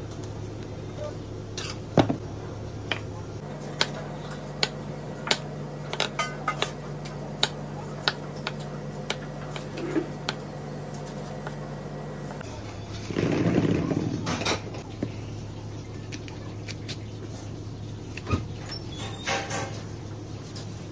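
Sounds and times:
steady low hum: 0.0 - 18.9.

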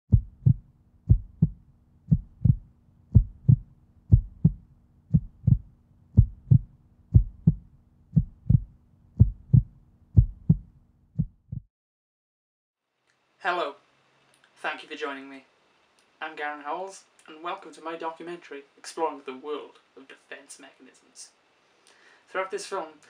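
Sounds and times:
faint low hum: 0.1 - 11.6
heartbeat double thumps: 0.1 - 11.7.

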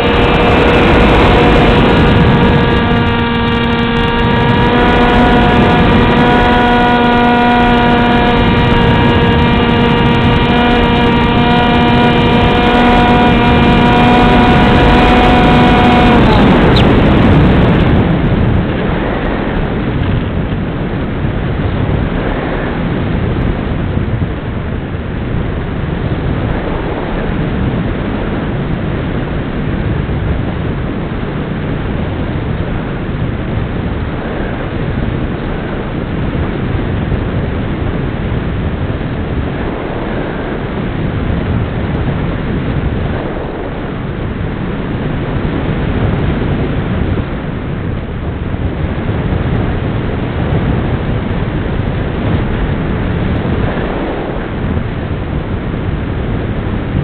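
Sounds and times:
model aircraft motor whine: 0.0 - 18.0
wind rushing over airframe: 0.0 - 57.0.

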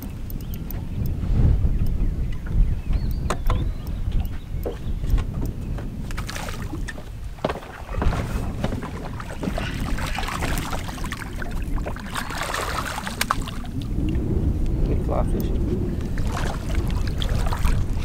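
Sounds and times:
sharp clicks: 0.0 - 1.2
low rumble: 0.0 - 18.0
wind buffeting microphone: 0.0 - 18.0
fish splashing in water: 6.1 - 14.2, 15.9 - 18.0.

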